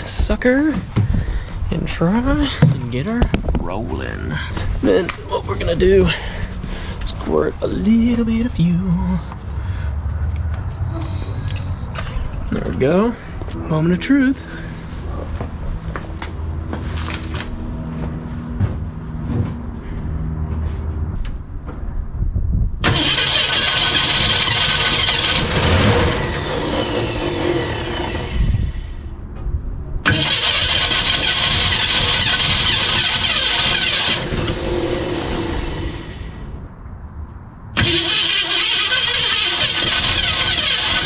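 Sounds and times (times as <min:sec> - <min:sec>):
car engine cranking on starter: 0:22.8 - 0:28.4, 0:30.0 - 0:36.4, 0:37.8 - 0:41.0.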